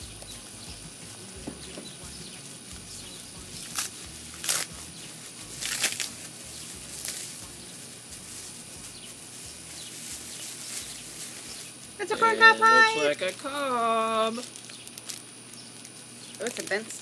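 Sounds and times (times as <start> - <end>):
plastic wrapping crinkling: 3.5 - 17.0.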